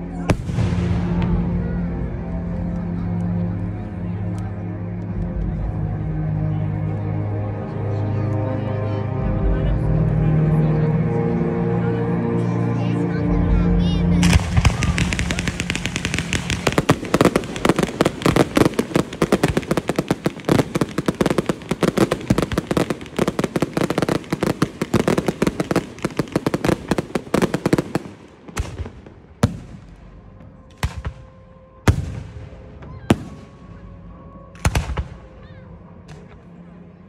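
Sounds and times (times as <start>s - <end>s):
fireworks crackling bangs: 14.2s - 30.0s.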